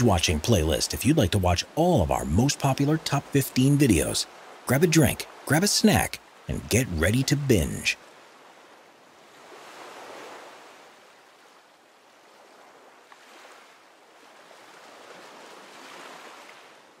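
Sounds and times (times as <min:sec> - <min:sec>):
soft surf noise: 0:00.0 - 0:17.0.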